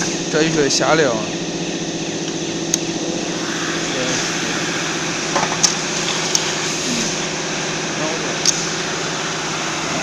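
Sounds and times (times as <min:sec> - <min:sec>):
welding machinery humming: 0:00.0 - 0:10.0.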